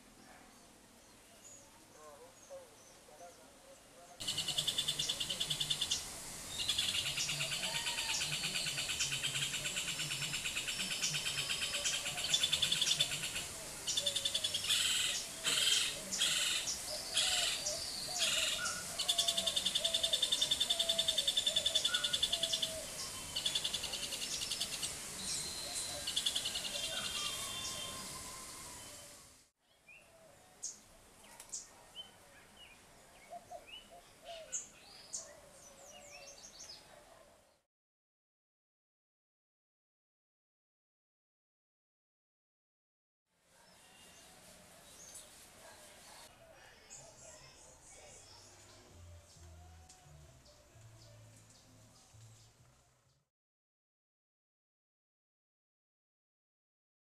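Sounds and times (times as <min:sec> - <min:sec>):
other birds calling: 0:04.2 - 0:29.2.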